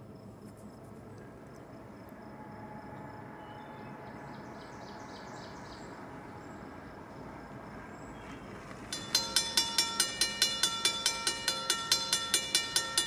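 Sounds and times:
car approaching: 1.3s - 11.5s.

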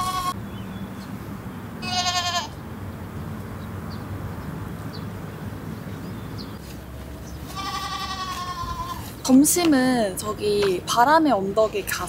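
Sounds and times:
goat bleating: 0.0s - 0.4s, 1.8s - 2.6s, 7.5s - 9.2s.

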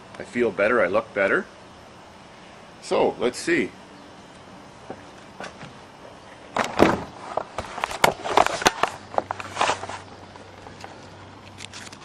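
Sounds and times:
handling clicks knocks and rustles: 6.5s - 12.0s.

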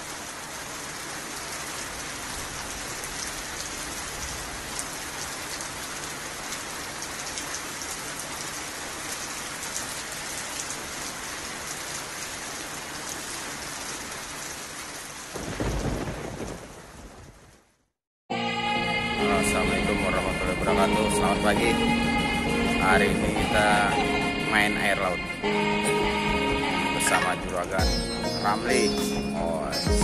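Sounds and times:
steady rain: 0.0s - 18.0s, 18.9s - 29.9s
raindrop ticks: 1.0s - 17.6s
thunder rumble: 15.3s - 17.8s.

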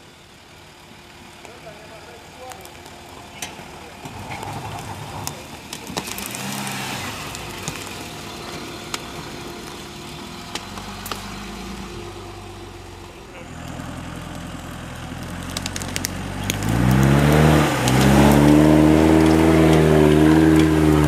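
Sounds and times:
engine running at low revs: 0.0s - 21.0s
tyres crunching on leaves: 1.5s - 21.0s
sharp cracks: 2.4s - 9.8s, 10.4s - 11.4s, 13.6s - 21.0s.

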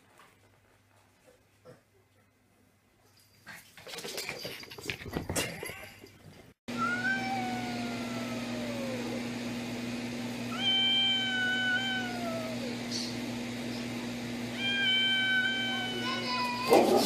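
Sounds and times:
cat yowling: 6.7s - 9.2s, 10.5s - 12.8s, 14.5s - 17.0s.

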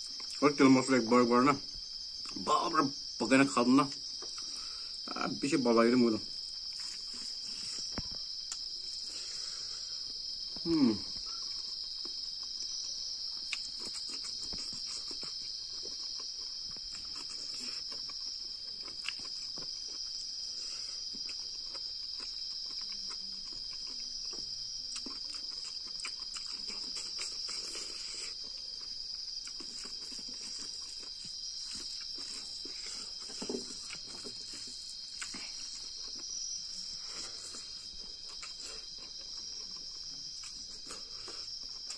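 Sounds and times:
night insects chirring: 0.0s - 41.9s
small eating clicks: 10.4s - 41.9s.

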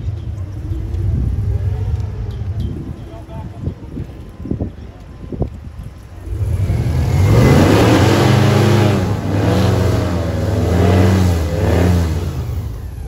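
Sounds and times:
airboat engine revving: 6.2s - 13.0s.

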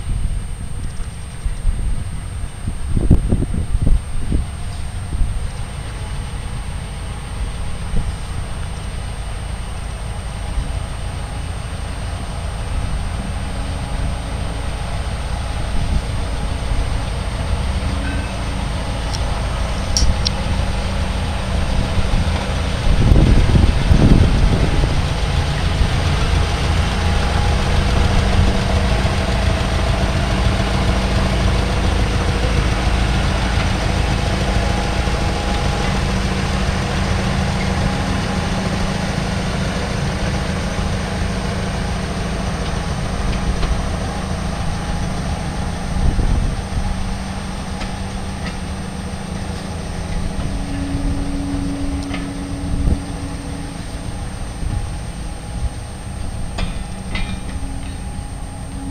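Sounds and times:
diesel locomotive engine running: 0.0s - 58.9s
railway coach thump and knocks: 42.6s - 58.9s.

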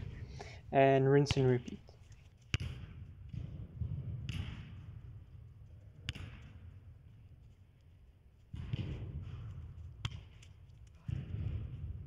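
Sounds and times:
low steady rumble: 0.0s - 1.9s.

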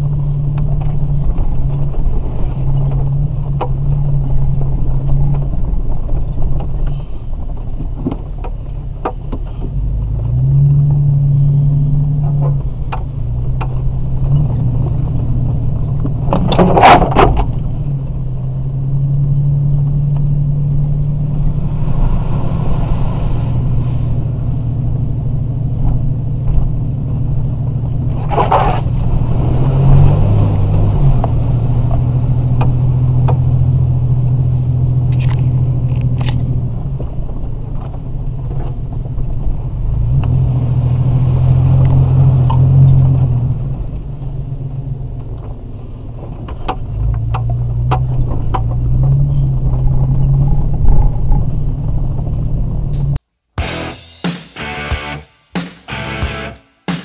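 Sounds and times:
vehicle engine droning: 0.0s - 55.3s, 55.9s - 56.9s
loud scraping noises: 21.4s - 24.7s.

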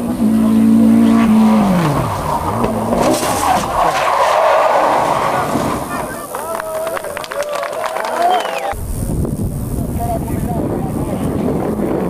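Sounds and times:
race car engine revving: 0.0s - 6.3s
tyres squealing: 0.5s - 7.2s.

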